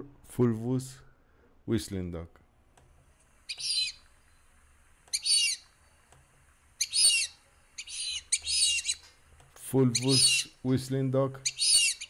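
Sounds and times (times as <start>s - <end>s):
duck calling: 5.1s - 5.7s, 9.9s - 10.6s.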